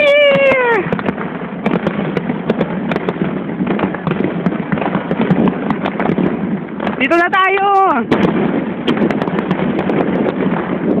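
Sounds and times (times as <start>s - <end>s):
person shouting: 0.0s - 0.9s
fireworks bursting and crackling: 0.0s - 11.0s.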